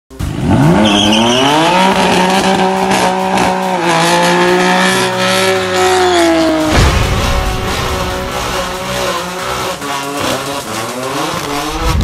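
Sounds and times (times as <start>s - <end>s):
car engine revving: 0.1s - 12.0s
tyre squeal: 0.7s - 2.0s, 5.8s - 6.6s.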